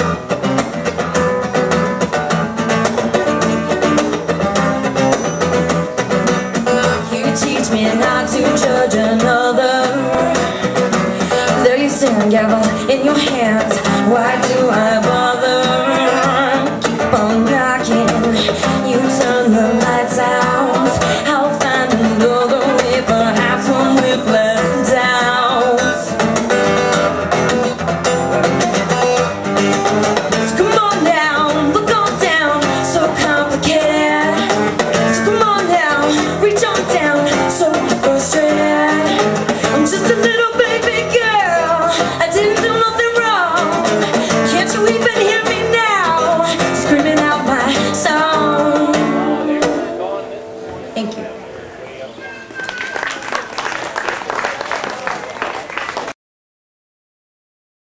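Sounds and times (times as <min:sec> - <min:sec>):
strummed acoustic guitar: 0:00.0 - 0:51.8
woman singing: 0:06.7 - 0:26.2, 0:30.4 - 0:49.7.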